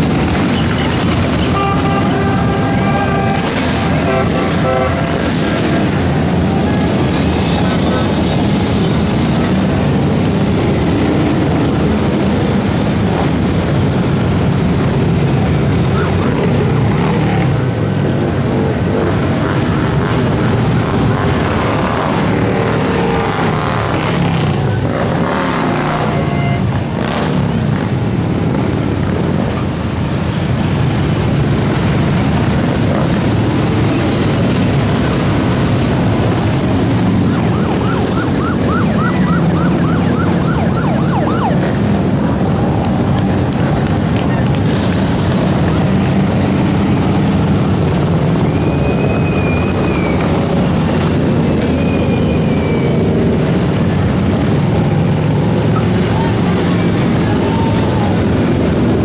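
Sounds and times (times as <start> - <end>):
motorcycles riding past: 0.0 - 59.0.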